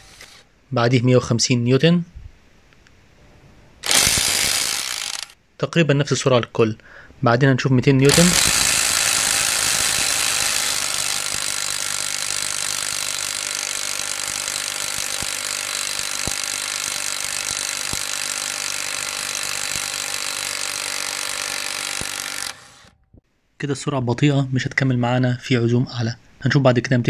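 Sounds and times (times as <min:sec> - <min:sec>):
impact wrench hammering: 0:03.8 - 0:05.4, 0:08.1 - 0:23.0.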